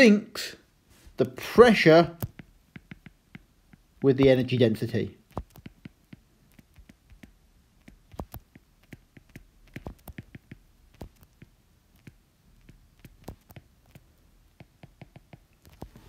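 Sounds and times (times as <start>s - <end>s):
stylus tapping on glass screen: 2.2s - 4.4s, 5.3s - 14.0s, 14.6s - 16.0s.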